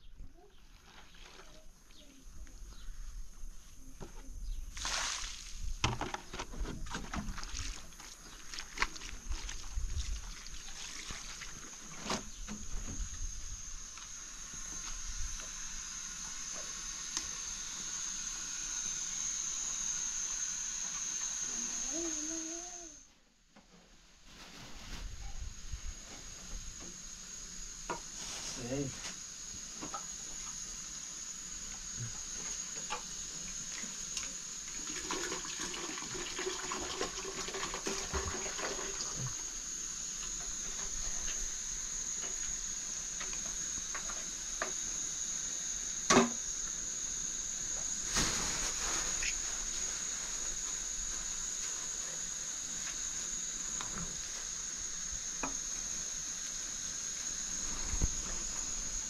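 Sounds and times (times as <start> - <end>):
steady high-pitched whine: 0.0 - 59.0.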